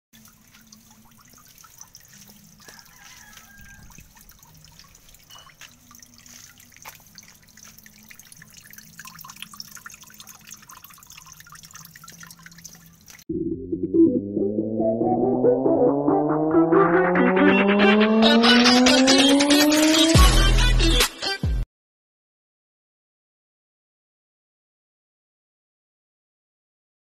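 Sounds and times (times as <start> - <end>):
water dripping into pond: 0.2 - 13.3.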